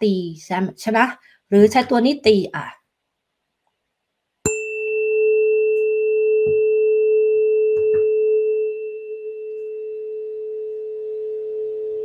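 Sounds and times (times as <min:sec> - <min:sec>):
tuning fork ringing: 0:04.5 - 0:12.0.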